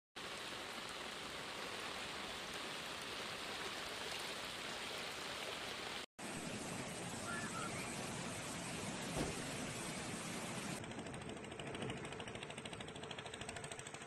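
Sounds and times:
steady rain hiss: 0.2s - 10.8s.

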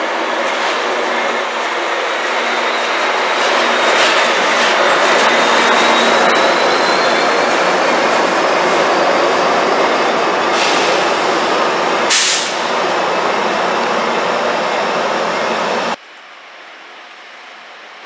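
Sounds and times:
train engine and wheels rumbling: 0.0s - 18.0s
faint thin squeal: 5.3s - 7.7s
short sharp hiss: 12.1s - 12.6s.

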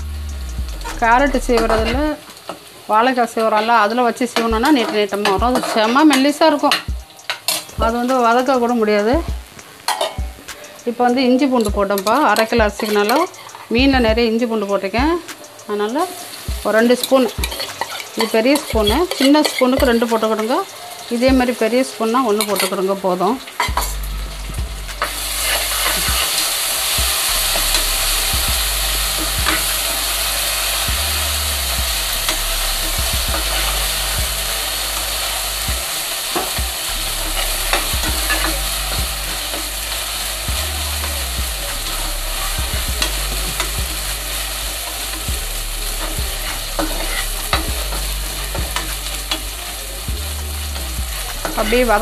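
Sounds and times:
onions sizzling in a pan: 0.0s - 52.0s
ladle scraping a pan: 16.0s - 24.0s, 25.0s - 30.9s, 45.9s - 49.6s.

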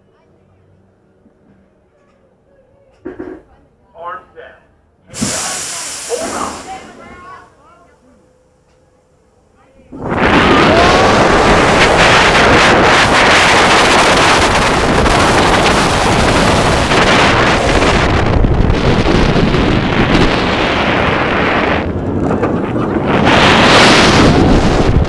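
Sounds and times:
roller coaster train rumbling: 5.2s - 25.0s
wind rushing over microphone: 9.9s - 25.0s.

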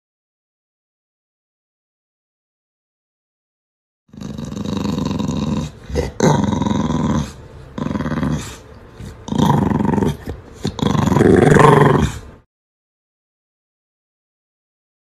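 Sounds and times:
dog growling: 4.1s - 12.4s.

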